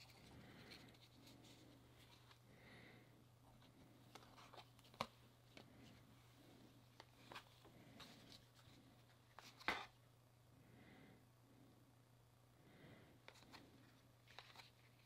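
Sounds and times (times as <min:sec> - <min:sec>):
trading cards rustling: 0:03.5 - 0:06.1, 0:06.8 - 0:09.9, 0:13.3 - 0:15.0.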